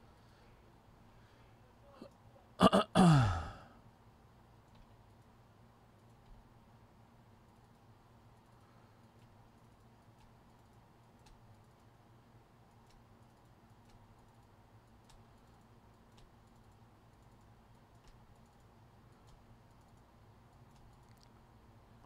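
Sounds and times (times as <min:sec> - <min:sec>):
low steady hum: 0:00.0 - 0:22.0
faint keyboard clicks: 0:04.6 - 0:06.6, 0:07.4 - 0:22.0.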